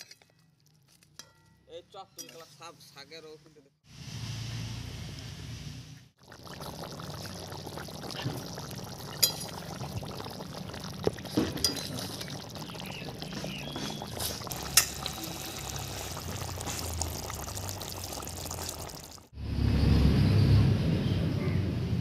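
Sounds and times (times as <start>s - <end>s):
curry bubbling in a wok: 6.2s - 19.3s.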